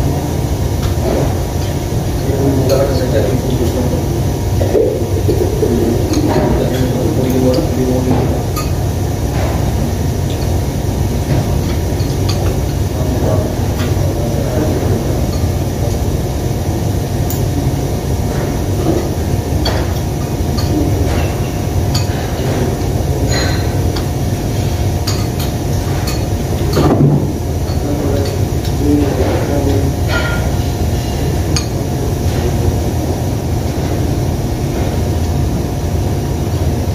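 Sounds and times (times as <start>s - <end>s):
low rumble of room noise: 0.0s - 36.9s
spoons clinking against bowls: 4.8s - 8.8s, 11.6s - 12.8s, 15.2s - 15.6s, 19.6s - 26.9s, 27.6s - 31.8s.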